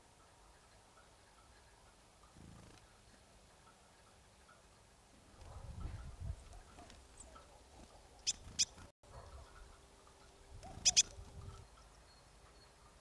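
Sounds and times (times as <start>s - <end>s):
bird calling sharp high notes: 10.8s - 11.2s.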